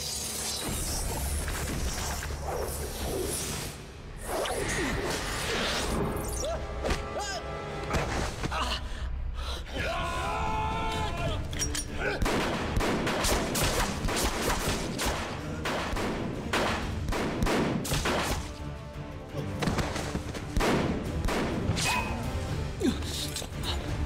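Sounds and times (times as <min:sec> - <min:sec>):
dramatic background music: 0:00.0 - 0:24.0.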